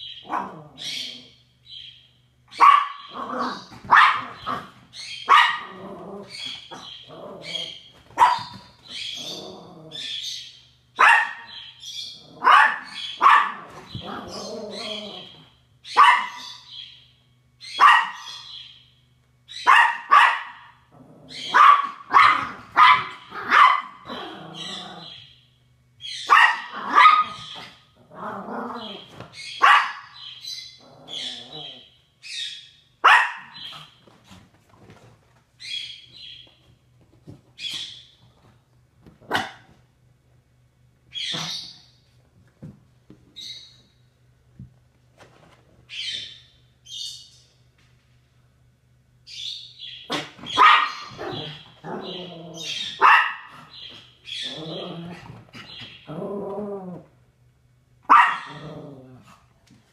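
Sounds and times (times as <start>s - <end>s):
small dog barking: 0.2s - 0.6s, 2.5s - 5.9s, 8.2s - 8.6s, 11.0s - 11.6s, 12.3s - 14.4s, 15.9s - 16.6s, 17.8s - 18.4s, 19.6s - 20.8s, 21.4s - 24.8s, 26.2s - 27.8s, 29.6s - 30.2s, 33.0s - 33.9s, 39.2s - 39.8s, 50.1s - 53.7s, 58.0s - 58.8s.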